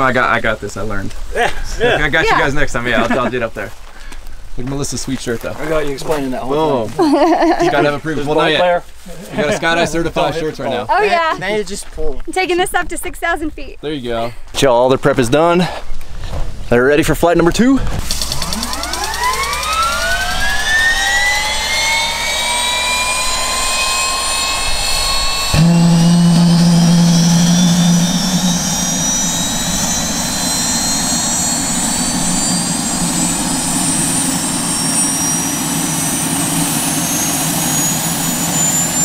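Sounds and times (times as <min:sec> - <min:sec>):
helicopter turbine whine: 0:01.8 - 0:03.6, 0:18.0 - 0:39.0
loud steady low hum: 0:18.0 - 0:39.0.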